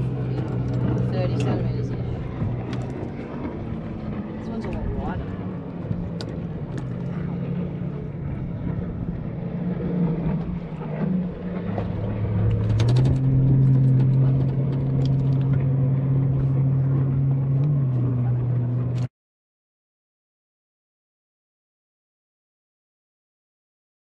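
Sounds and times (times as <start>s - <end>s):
boat engine running: 0.0s - 19.1s.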